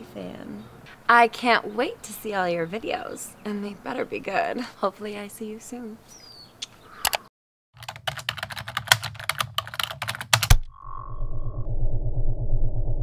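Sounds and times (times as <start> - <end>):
fast keyboard typing: 7.8 - 10.6
low pulsing: 10.6 - 13.0.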